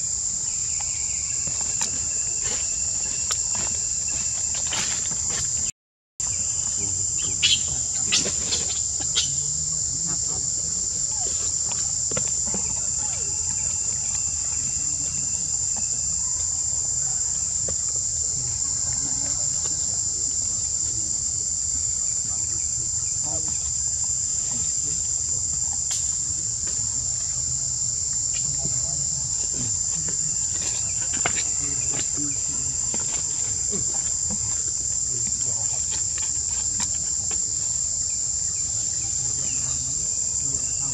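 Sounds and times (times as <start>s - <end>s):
high-pitched insect drone: 0.0s - 40.9s.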